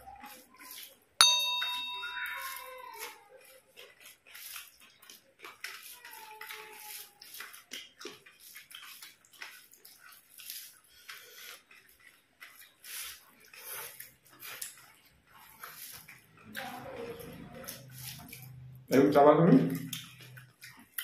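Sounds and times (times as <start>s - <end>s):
people chewing: 0.0s - 1.2s, 1.8s - 18.9s, 19.6s - 21.0s
lip smacks: 3.8s - 16.2s, 19.8s - 21.0s
squelch of rice squeezed in fingers: 5.5s - 11.6s.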